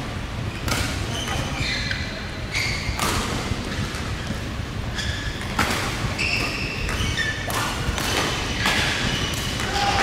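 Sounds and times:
shoes squeaking on court: 0.5 - 9.6
racket striking shuttlecock: 5.4 - 9.9.

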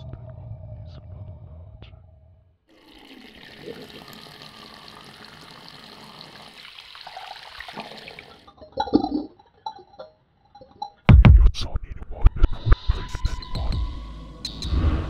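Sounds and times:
tap water running into sink: 2.8 - 8.5.

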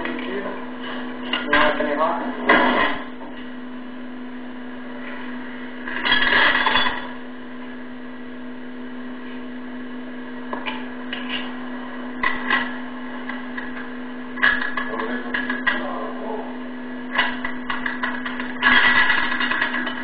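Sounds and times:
electrical machine hum: 0.0 - 20.0.

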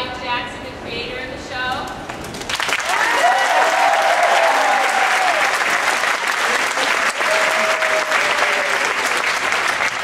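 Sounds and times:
audience applauding: 2.3 - 10.0
voices cheering: 2.8 - 9.8.

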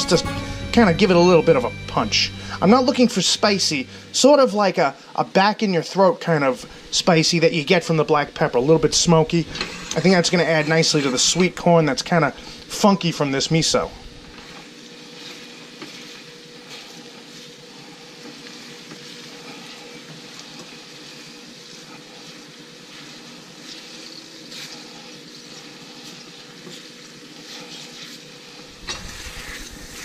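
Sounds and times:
faint steady hum: 0.0 - 5.4
liquid sizzling and bubbling in skillet: 6.2 - 30.0
spatula scraping: 9.4 - 11.6, 21.7 - 30.0.

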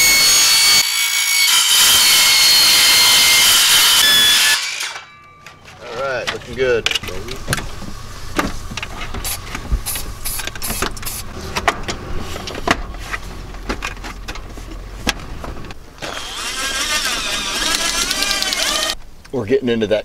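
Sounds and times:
cordless drill motor whine: 16.0 - 19.0.

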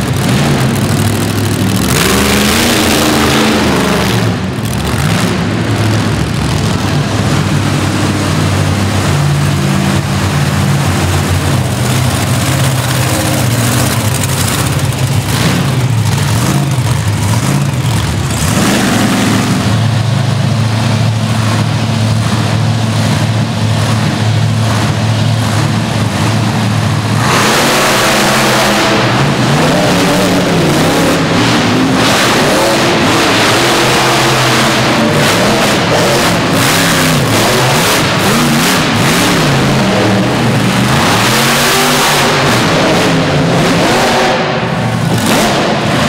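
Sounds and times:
monster truck engines revving: 0.0 - 46.0.

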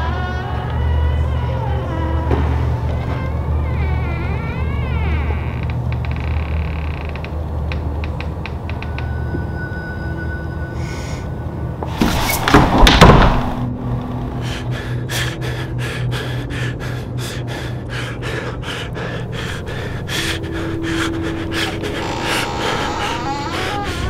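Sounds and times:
steady low drone: 0.0 - 8.1, 13.2 - 24.0.

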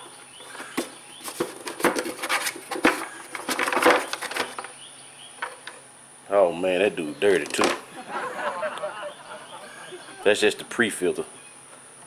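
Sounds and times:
plastic cover rattling: 0.7 - 4.7.

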